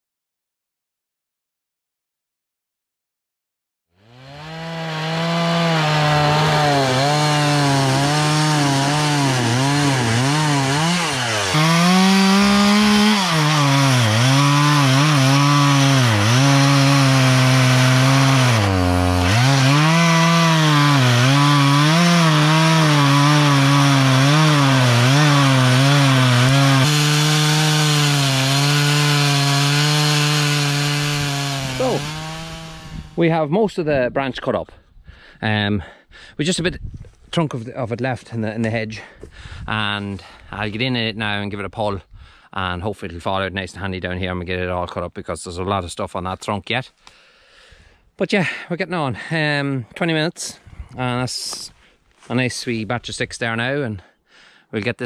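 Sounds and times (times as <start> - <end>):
chainsaw cutting through logs: 4.0 - 33.2.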